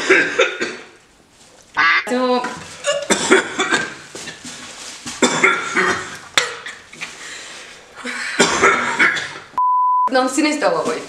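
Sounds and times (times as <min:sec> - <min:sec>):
people coughing and gagging: 0:00.0 - 0:01.0, 0:02.7 - 0:04.1, 0:05.2 - 0:06.9, 0:08.0 - 0:09.5.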